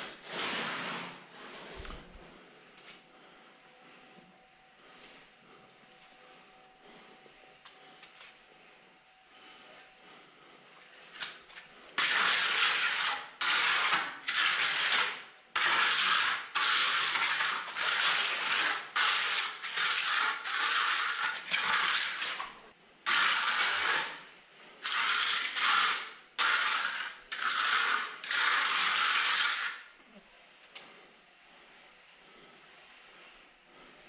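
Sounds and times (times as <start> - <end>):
tool scraping gritty concrete: 0.0 - 2.0, 12.0 - 21.9, 23.1 - 24.2, 24.9 - 29.9.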